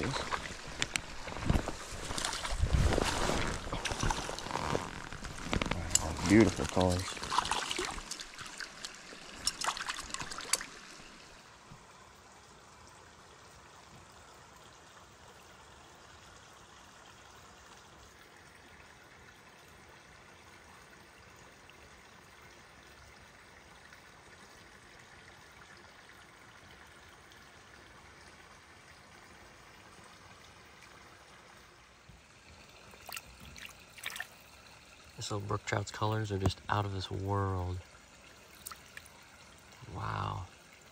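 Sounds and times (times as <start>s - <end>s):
splashy knocks and rustles: 0.0s - 10.8s
stream trickling: 0.0s - 40.9s.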